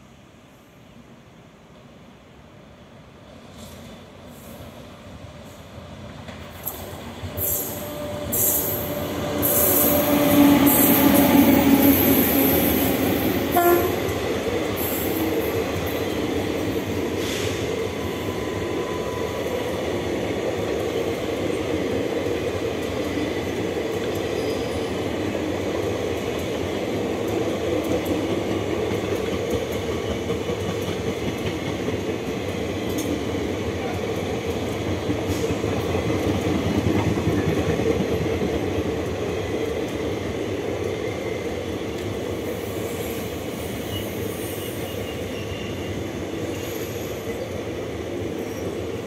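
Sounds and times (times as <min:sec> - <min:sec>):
electric locomotive passing: 0:00.1 - 0:49.0
train coaches rumbling on rails: 0:00.8 - 0:49.0.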